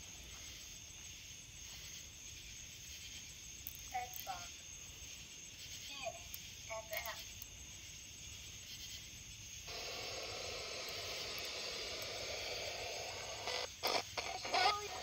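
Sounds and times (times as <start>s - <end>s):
radio static sweeping stations: 9.7s - 15.0s.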